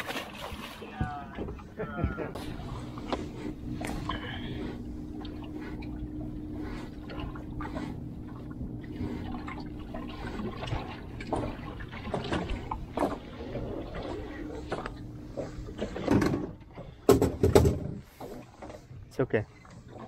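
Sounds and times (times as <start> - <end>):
water slapping against boat hull: 0.0 - 18.9
boat motor hum: 0.0 - 20.0
knocks: 17.1 - 18.0.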